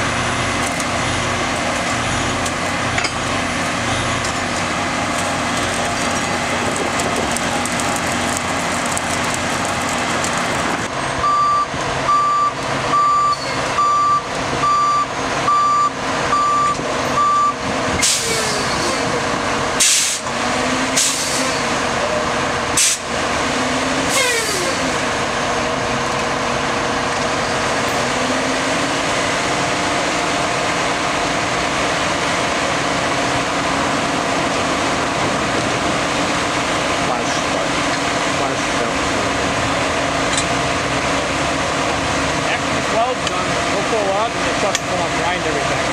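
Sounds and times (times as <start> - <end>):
truck engine running: 0.0 - 13.0
backup alarm beeping: 11.2 - 17.6
short sharp air hisses: 19.8 - 20.2, 21.0 - 21.6, 22.8 - 23.0.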